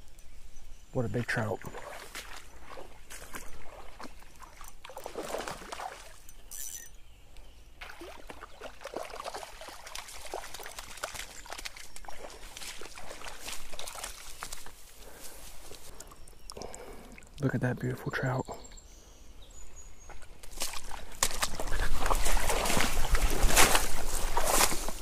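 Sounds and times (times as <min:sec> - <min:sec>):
water splashing and sloshing: 0:01.3 - 0:06.5, 0:07.7 - 0:17.4, 0:20.1 - 0:25.0
fish thrashing in water: 0:01.6 - 0:06.2, 0:07.8 - 0:14.8, 0:20.5 - 0:25.0.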